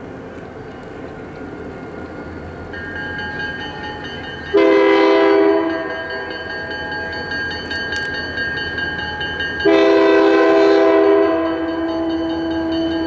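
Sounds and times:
oncoming train rumbling: 0.0 - 13.0
locomotive air horn blast: 4.5 - 5.9, 9.6 - 11.7.

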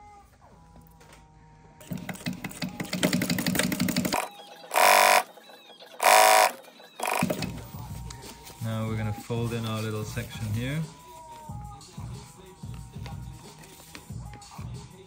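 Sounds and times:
sewing machine stitching: 1.8 - 7.6.

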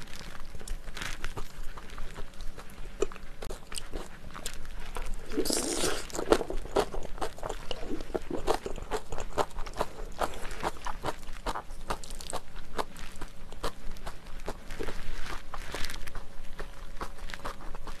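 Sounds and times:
wet mouth chewing clicks: 0.6 - 15.0
noisy bite: 5.2 - 6.4.

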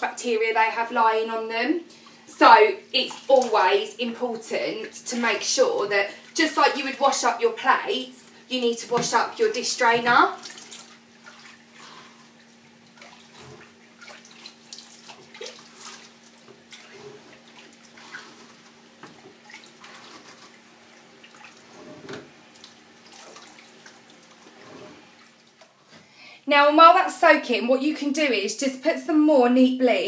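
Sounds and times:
faint steady hum: 0.0 - 30.0
water sloshing in a sink: 0.1 - 26.1.

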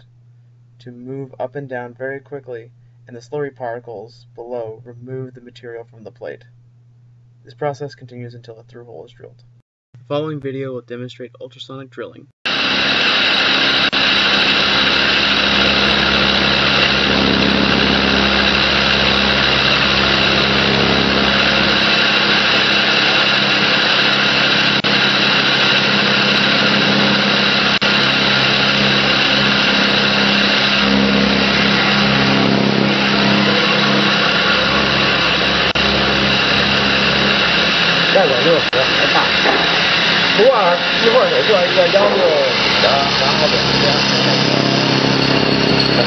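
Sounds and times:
low machine hum: 0.0 - 10.4, 12.5 - 46.0
drilling machine hiss: 12.5 - 46.0.

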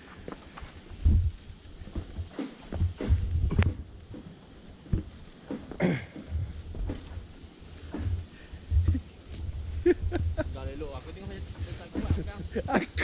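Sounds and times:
footsteps on wooden planks: 0.0 - 9.7, 11.0 - 13.0
dull low thumps: 1.0 - 4.2, 5.9 - 13.0.

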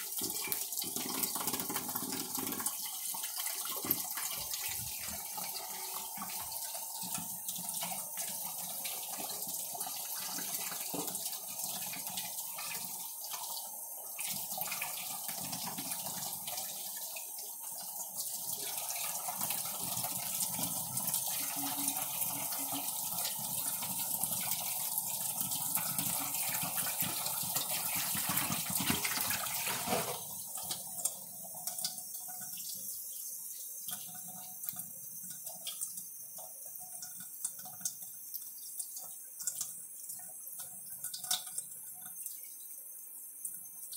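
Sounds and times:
tap water splashing into metal sink: 0.0 - 5.2, 10.3 - 12.2, 25.9 - 32.5.

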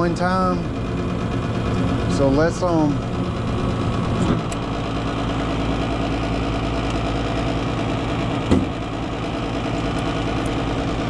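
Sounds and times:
gas furnace motor and fan hum: 0.0 - 11.0
knock: 8.5 - 8.7.

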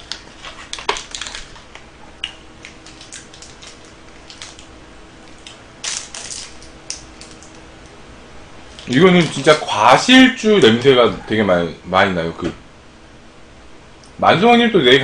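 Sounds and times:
wrapper tearing: 0.0 - 1.8, 2.6 - 4.7, 5.3 - 7.6, 8.7 - 9.6
plastic wrapper crinkling: 0.0 - 7.9, 8.6 - 9.7.

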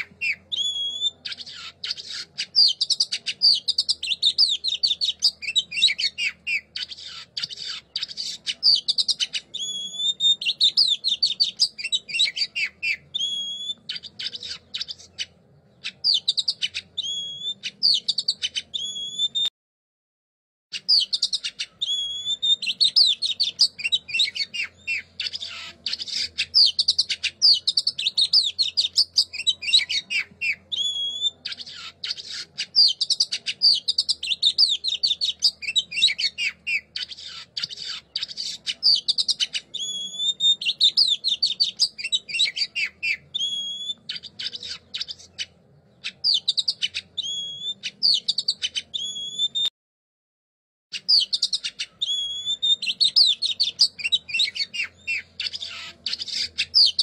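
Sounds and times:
songbird twittering and trills: 0.0 - 19.5, 20.7 - 49.7, 50.9 - 57.0
bird rising whistle: 9.6 - 13.9, 21.8 - 25.0, 39.8 - 44.1, 51.2 - 55.3.

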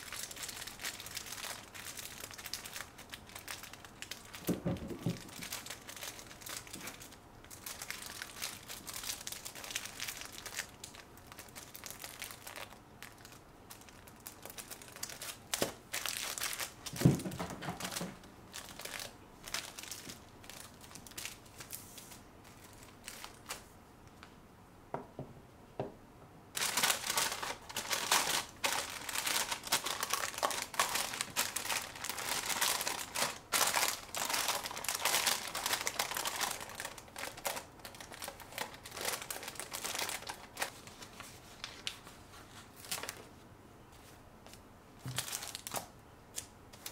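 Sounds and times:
paper rustling and crinkling: 11.3 - 23.7, 26.6 - 43.3, 43.9 - 45.9.

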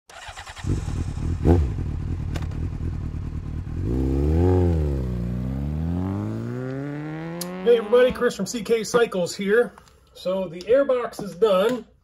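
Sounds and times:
motorcycle engine running: 0.6 - 8.4.

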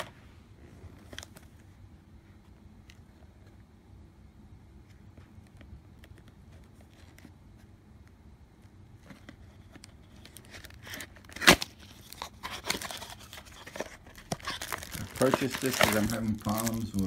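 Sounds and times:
cardboard box rustling and crinkling: 9.0 - 17.0.

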